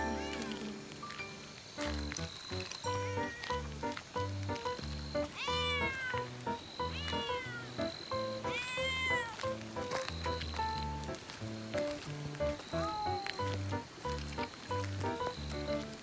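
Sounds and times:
cat meowing: 2.9 - 3.7, 5.3 - 6.2, 6.8 - 9.4, 12.7 - 13.5.

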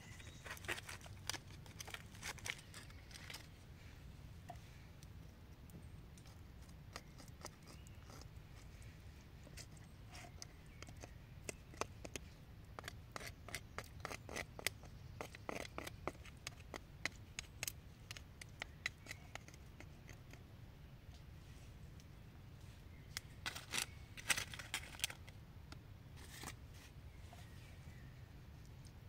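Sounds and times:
knife scraping bone: 6.2 - 8.3, 12.8 - 20.3.

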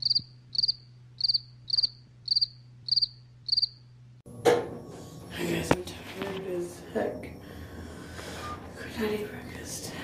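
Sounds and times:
cricket chirping: 0.0 - 3.9.

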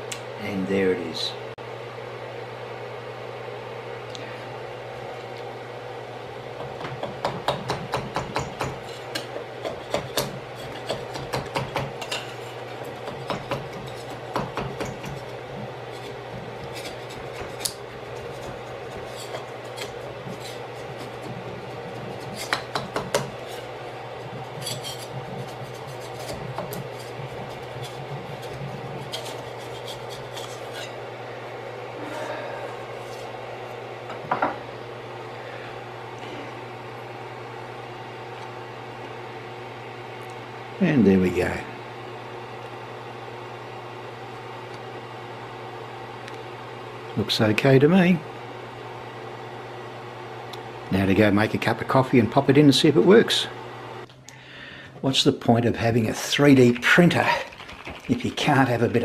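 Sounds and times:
steady low hum: 0.0 - 59.0
metal scraper on glass bed: 15.9 - 23.7, 24.4 - 31.0.

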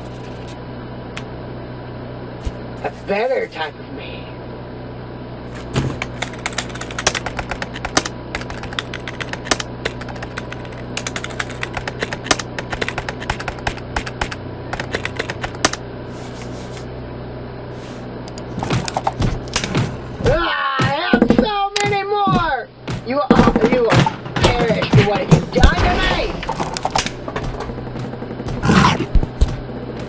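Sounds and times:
typing on keyboard: 5.9 - 15.8.

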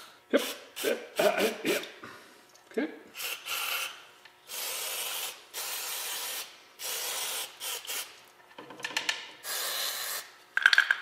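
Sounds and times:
aerosol spray can hissing: 4.5 - 8.1, 9.4 - 10.3.

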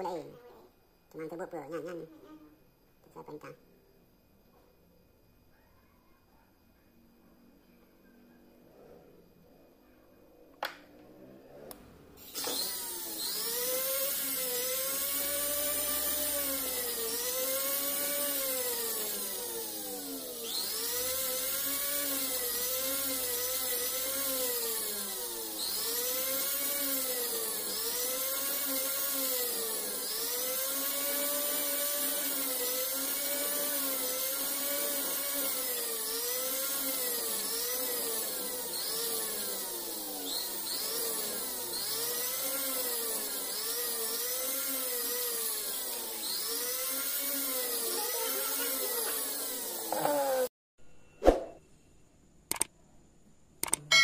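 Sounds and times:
rotary tool whining: 11.6 - 50.5
sharp clicks: 52.5 - 52.7, 53.6 - 53.9.

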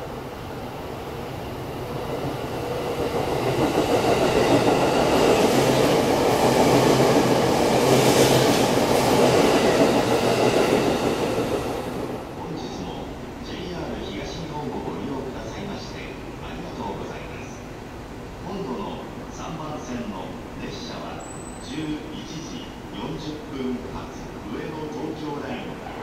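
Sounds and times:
electric train passing at speed: 0.0 - 26.0.

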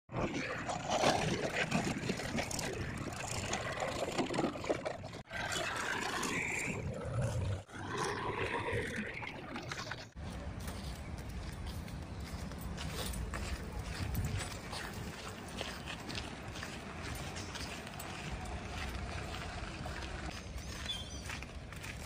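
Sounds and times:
diesel engines running: 10.2 - 21.8.

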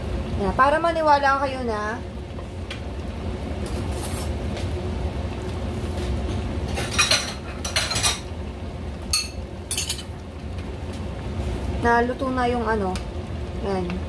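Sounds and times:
pot simmering: 0.0 - 14.0
steady low hum: 0.0 - 14.0
dishes and cutlery clinking: 6.7 - 8.3, 9.1 - 10.1.

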